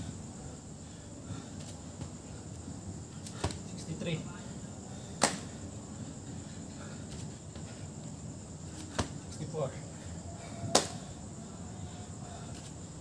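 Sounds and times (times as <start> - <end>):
night insects trilling: 0.0 - 13.0
sharp slaps: 3.2 - 3.6, 5.2 - 5.6, 8.8 - 9.2, 10.7 - 11.0.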